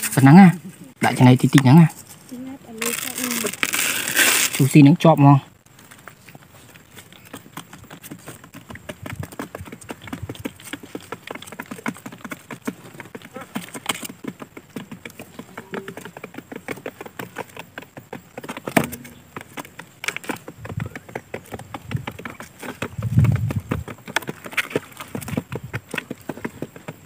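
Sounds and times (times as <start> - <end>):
birds tapping on cardboard: 6.8 - 27.0
sharp knock: 18.7 - 19.3.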